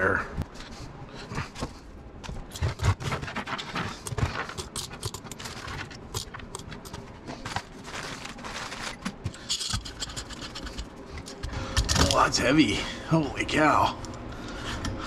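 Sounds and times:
small parts clicking and knocking: 2.2 - 12.2
plastic bags rustling: 7.0 - 9.5.

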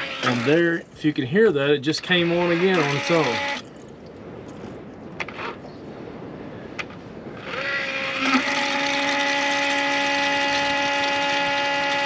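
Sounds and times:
electric fuel pump whining: 0.0 - 0.6, 2.0 - 3.7, 7.4 - 12.0.

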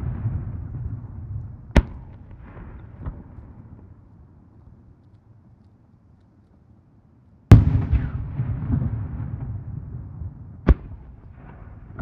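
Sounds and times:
firework boom with rumbling tail: 7.5 - 12.0.

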